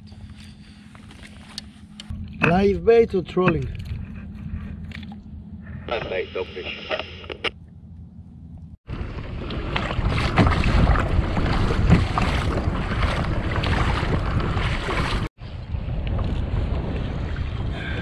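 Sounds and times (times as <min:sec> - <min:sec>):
water splashing against hull: 0:08.8 - 0:18.0
wind buffeting microphone: 0:08.8 - 0:18.0.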